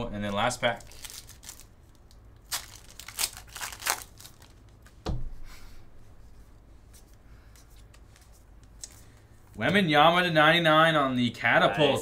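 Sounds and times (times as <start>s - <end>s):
cards rustling: 0.7s - 5.0s
foil wrapper tearing: 0.8s - 4.6s
dull thump: 5.0s - 5.4s.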